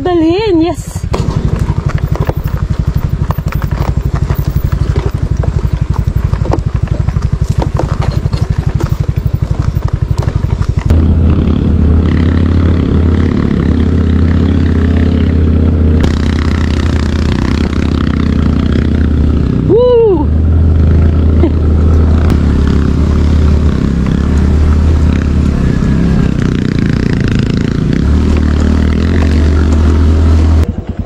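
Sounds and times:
scooter engine running: 0:00.0 - 0:31.0
scattered clatter: 0:01.1 - 0:12.6.

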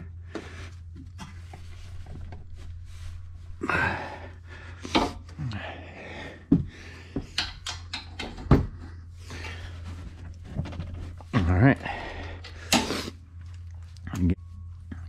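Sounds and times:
steady low hum: 0:00.0 - 0:15.0
rustling movement: 0:00.5 - 0:04.9.

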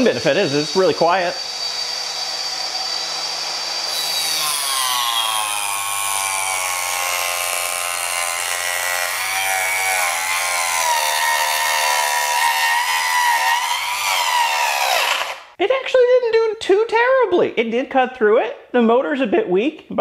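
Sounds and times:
table saw motor whining: 0:00.0 - 0:15.6.

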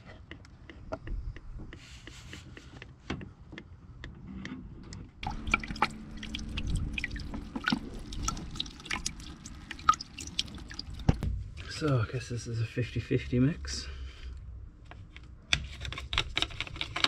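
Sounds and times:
low steady hum: 0:04.0 - 0:14.6
fluid dripping into liquid: 0:05.2 - 0:11.2.

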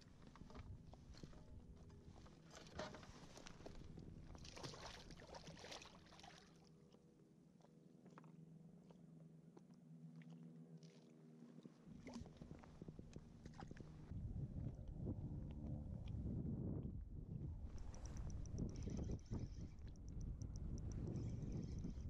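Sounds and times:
faint low hum: 0:00.0 - 0:22.0
fish splashing in water: 0:04.3 - 0:06.6.

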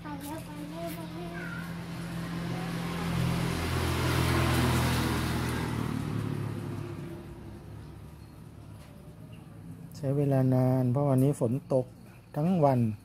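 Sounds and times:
vehicle driving past: 0:01.2 - 0:10.5.

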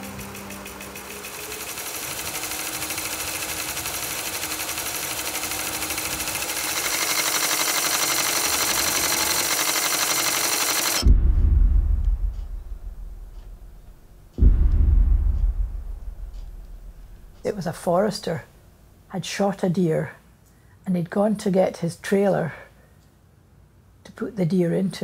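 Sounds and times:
mechanical rattling buzz: 0:00.0 - 0:18.2
deep boom: 0:11.0 - 0:17.4.

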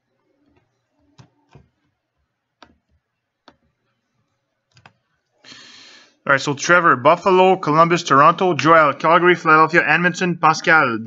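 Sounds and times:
mouse and keyboard clicks: 0:00.4 - 0:01.9.

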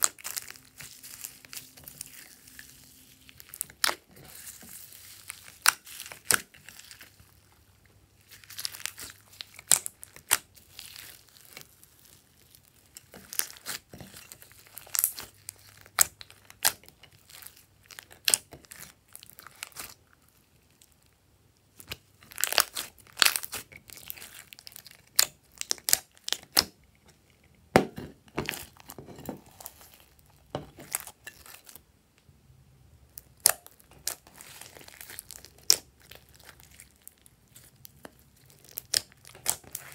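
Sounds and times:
slime squelching and popping: 0:00.0 - 0:07.4, 0:08.2 - 0:20.0, 0:21.8 - 0:26.8, 0:33.2 - 0:39.9.

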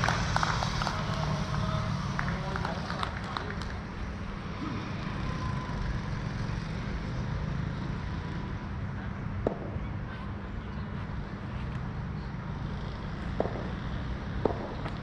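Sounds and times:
sharp knock: 0:09.4 - 0:09.9.

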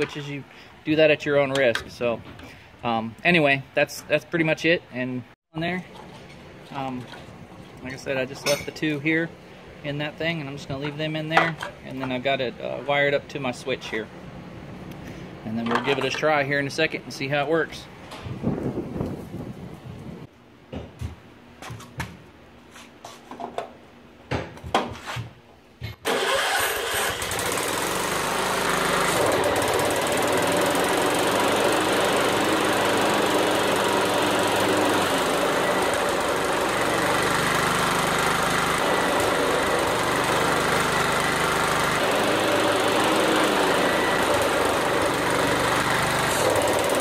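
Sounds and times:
lawn tractor engine running: 0:26.1 - 0:47.0.

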